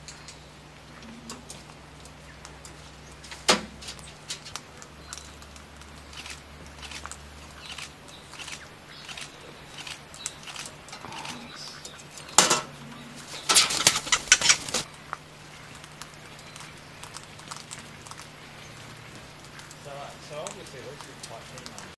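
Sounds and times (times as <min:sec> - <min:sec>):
bird wings flapping: 0:02.7 - 0:14.9.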